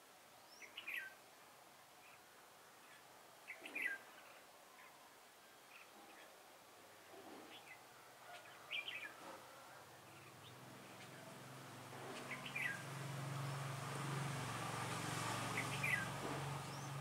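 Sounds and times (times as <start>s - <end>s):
birds chirping: 2.8s - 5.0s, 5.6s - 17.0s.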